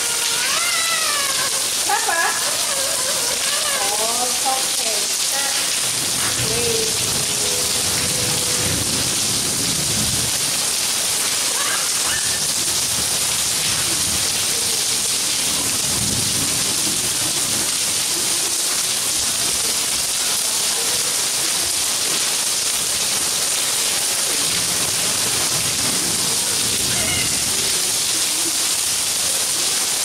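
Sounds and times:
rain falling on paving: 0.0 - 30.0.

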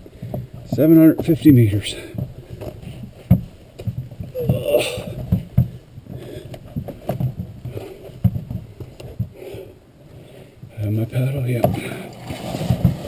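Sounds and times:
footfalls: 0.4 - 9.7
knocks on canoe hull: 3.2 - 5.8
person grunting: 4.4 - 5.2.

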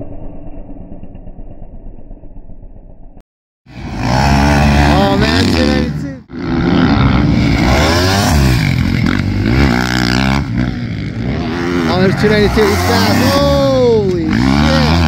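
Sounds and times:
motocross bike engine revving: 3.7 - 15.0.

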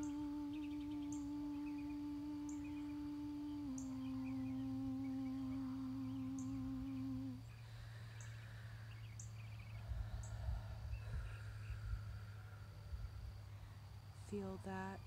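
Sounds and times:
woman humming a long note: 0.0 - 7.8
faint high chirps and trills: 0.0 - 15.0
low steady hum: 0.0 - 15.0.

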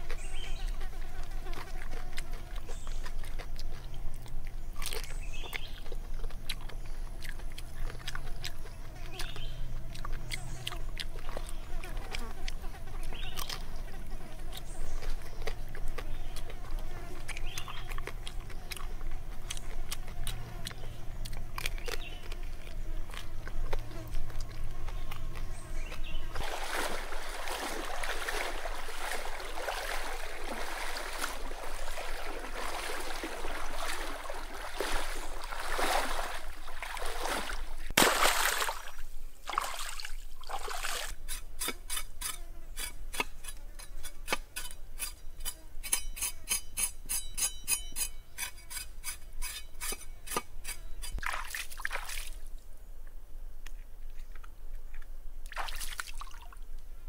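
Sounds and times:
hand rubbing skin in water: 24.1 - 38.9
water splashing and sloshing: 26.3 - 41.2, 51.2 - 52.5, 55.4 - 56.6.

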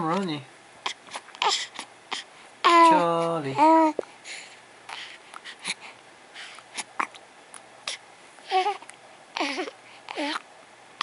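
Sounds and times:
baby cooing: 0.8 - 4.0, 6.8 - 7.2, 7.9 - 10.4
baby soft breaths: 4.0 - 6.9.

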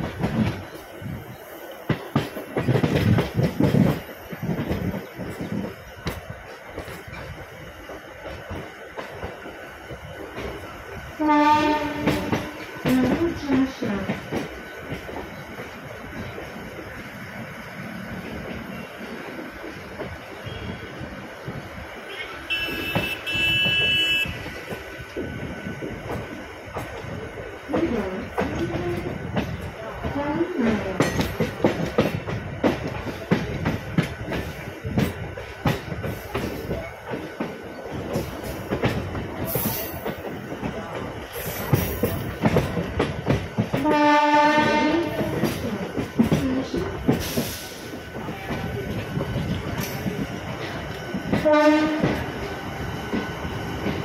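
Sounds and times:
train wheels clicking over rail joints: 0.0 - 54.0
train horn: 11.2 - 12.6, 22.1 - 24.4, 43.8 - 45.2, 51.4 - 52.2.

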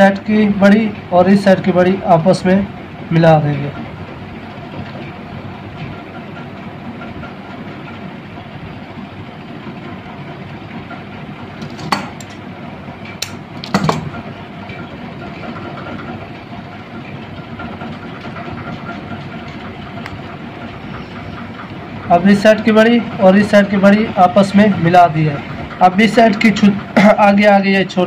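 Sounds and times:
mechanical hum: 0.0 - 28.0
clicks of wire leads handled: 11.6 - 12.4, 13.0 - 14.2.

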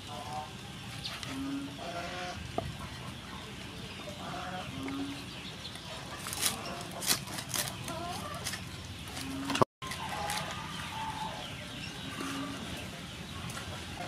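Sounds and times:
cleaver crunching pork skin: 6.2 - 10.7.

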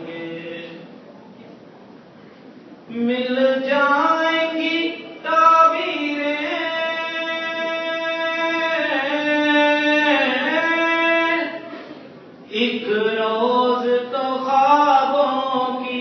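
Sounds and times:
person singing devotional poem: 2.9 - 11.6, 12.5 - 16.0.

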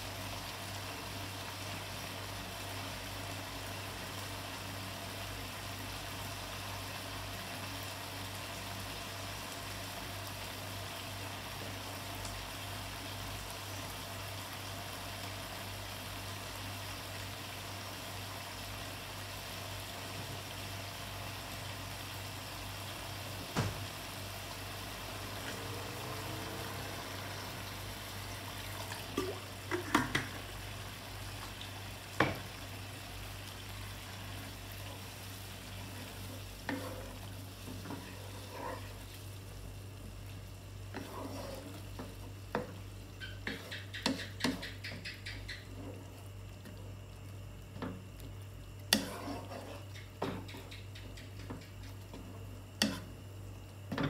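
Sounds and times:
sauce sizzling in a frying pan: 0.0 - 54.0
wooden spatula scraping a pan: 35.8 - 39.2, 40.9 - 46.2, 48.9 - 50.7, 52.0 - 53.1.

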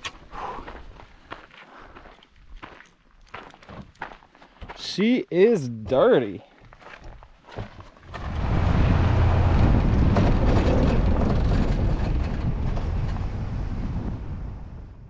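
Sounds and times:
vehicle driving on dirt road: 7.7 - 15.0.

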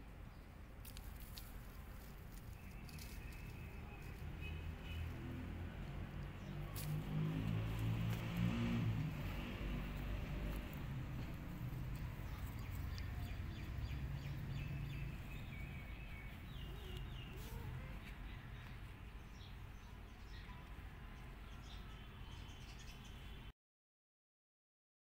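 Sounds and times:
small birds chirping: 0.3 - 23.5
low outdoor rumble: 5.6 - 19.7.

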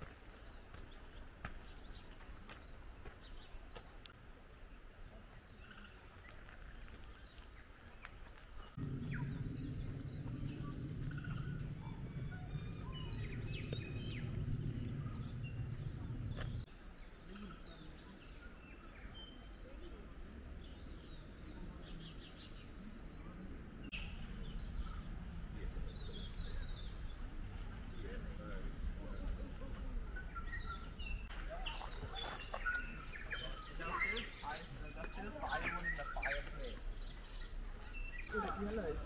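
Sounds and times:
small birds chirping: 0.0 - 39.0
low rumbling noise: 8.6 - 17.1, 20.2 - 35.2.

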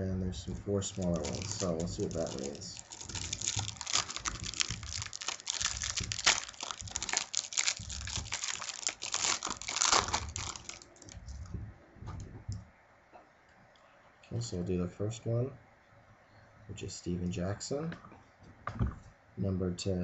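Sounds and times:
plastic packaging crinkling: 0.8 - 11.5.

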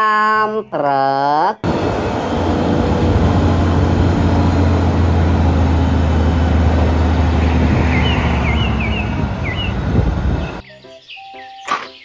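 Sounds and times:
diesel truck engine running: 1.6 - 10.6
bird chirping: 7.2 - 12.0.

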